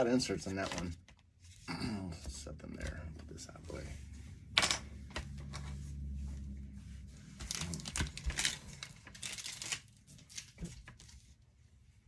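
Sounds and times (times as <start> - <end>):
trading cards rustling: 0.2 - 1.7, 7.2 - 11.4.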